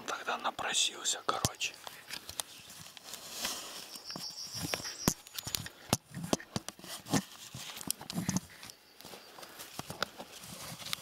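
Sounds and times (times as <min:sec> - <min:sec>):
gun and camera handling clicks: 0:01.8 - 0:02.5
moving through dry grass: 0:01.8 - 0:11.0.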